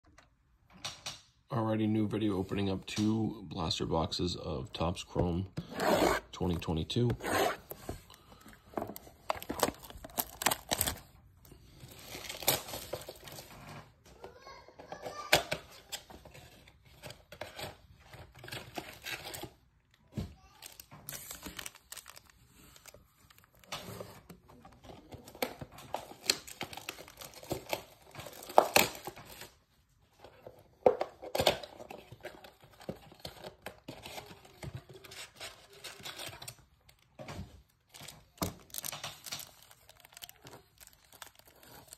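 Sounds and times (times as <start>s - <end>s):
cardboard boxes opened: 5.6s - 11.2s, 30.2s - 41.9s
foil packs crinkling: 6.4s - 13.6s, 20.4s - 29.6s, 31.4s - 41.9s
plastic wrap tearing: 9.2s - 11.2s, 11.8s - 13.7s, 20.4s - 24.3s, 25.0s - 29.6s, 37.8s - 41.9s.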